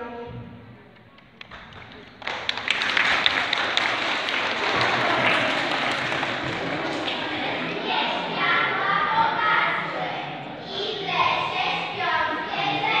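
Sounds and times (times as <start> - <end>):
children applauding: 1.1 - 8.6.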